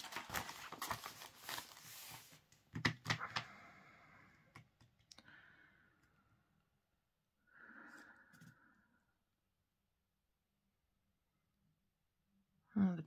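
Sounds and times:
paper crinkling: 0.0 - 2.5
paper rustling: 0.0 - 3.2.

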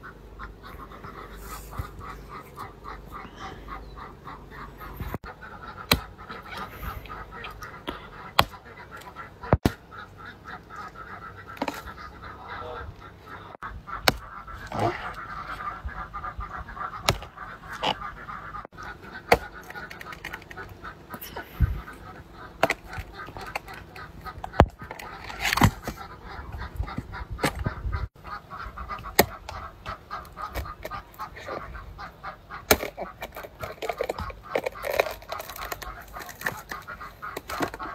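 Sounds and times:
metal hoe striking soil: 5.8 - 6.7, 9.5 - 9.8, 14.0 - 14.9, 17.0 - 18.0, 29.0 - 29.6, 32.6 - 37.9.

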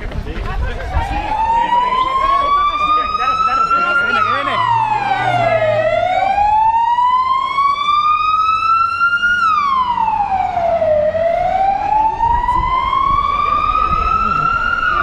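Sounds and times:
ambulance siren wailing: 0.8 - 15.0.

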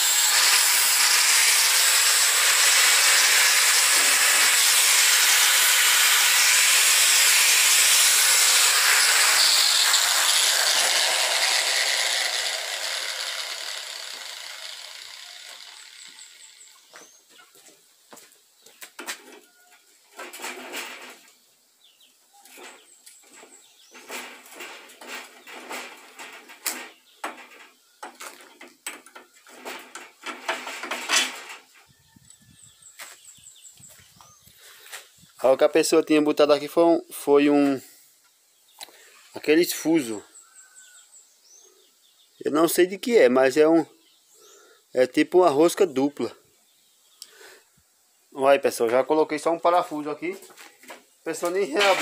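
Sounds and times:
angle grinder running: 0.0 - 16.9.

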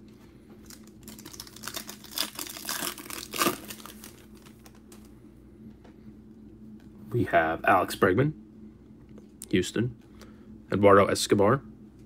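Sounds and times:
foil wrapper crinkling and tearing: 0.6 - 5.0.

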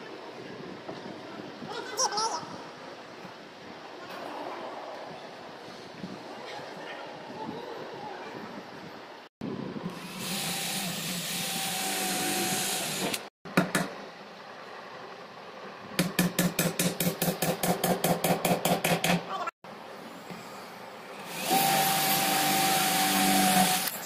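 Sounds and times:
hammer striking nail into wood: 16.0 - 19.2.

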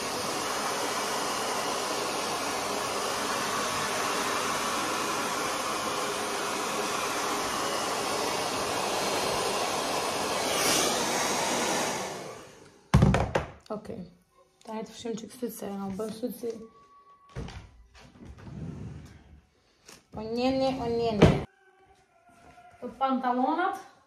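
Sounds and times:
hair dryer blowing: 0.0 - 13.1.

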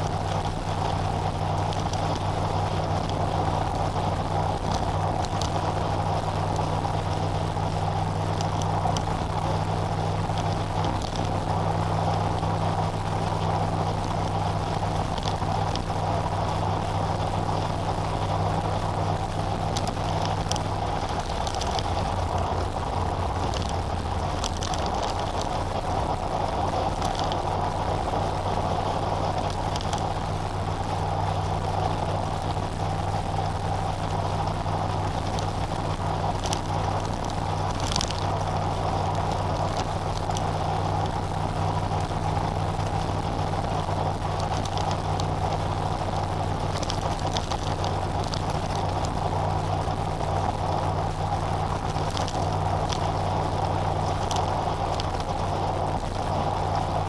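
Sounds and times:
low engine drone: 0.0 - 57.0
tyre and road noise: 0.0 - 57.0
faint ticks: 4.5 - 5.8, 14.9 - 15.9, 19.7 - 25.6, 26.9 - 27.5, 29.3 - 30.1, 36.3 - 41.4, 44.2 - 49.8, 51.4 - 56.9.

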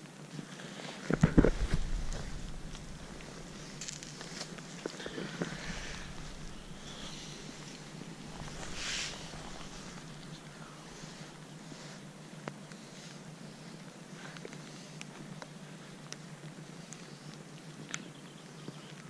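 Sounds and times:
rain ticking on camera housing: 1.0 - 12.8
rush of noise: 1.1 - 12.2
distant boat engine drone: 1.2 - 13.6.

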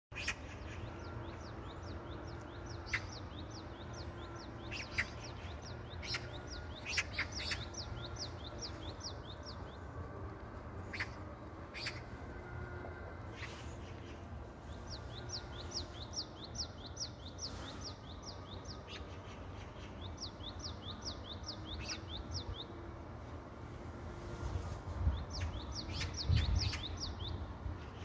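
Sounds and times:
low background noise: 0.1 - 28.0
small bird chirping: 0.2 - 9.8.

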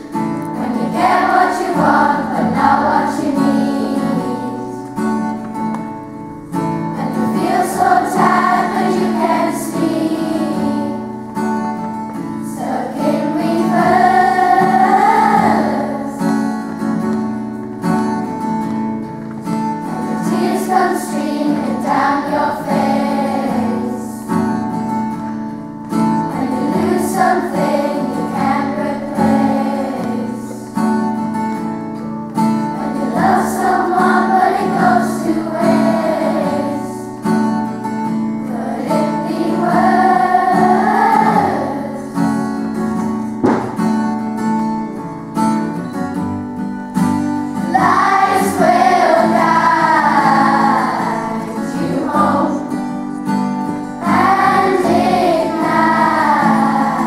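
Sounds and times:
children's choir singing: 0.0 - 25.3, 25.9 - 31.7, 32.4 - 44.0, 47.0 - 57.0
strummed acoustic guitar: 0.0 - 57.0
sharp knock: 43.4 - 44.0.

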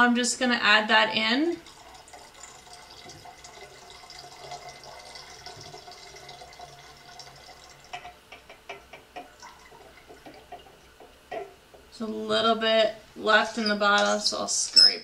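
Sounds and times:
liquid trickling into glass bottle: 1.6 - 11.6
drips and light clicks: 1.6 - 12.2, 13.6 - 14.3.

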